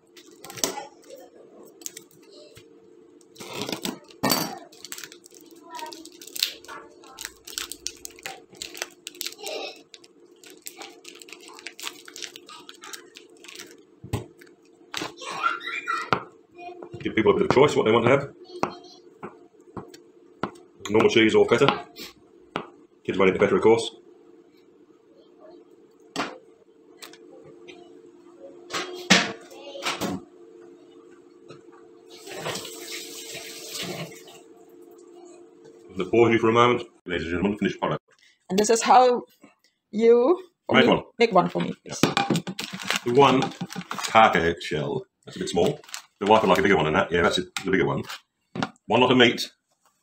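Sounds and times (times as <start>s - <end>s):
plastic packet crinkling: 3.7s - 14.7s, 42.4s - 44.4s, 45.4s - 46.8s.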